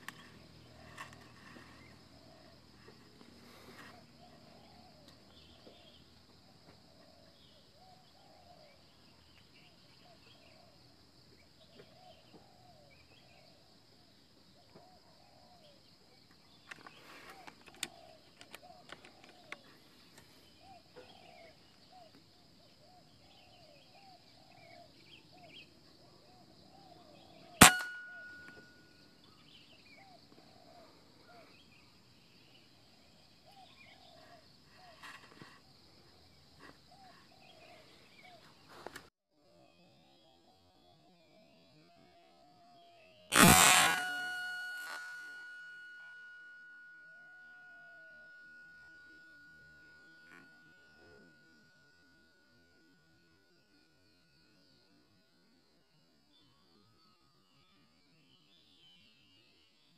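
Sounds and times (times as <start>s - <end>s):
air rifle shot: 27.6s - 28.7s, 43.3s - 45.8s.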